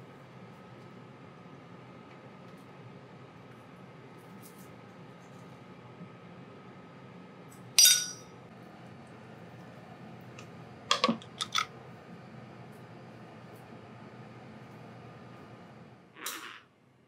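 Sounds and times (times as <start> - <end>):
glass lid clinking on frying pan: 7.8 - 8.2.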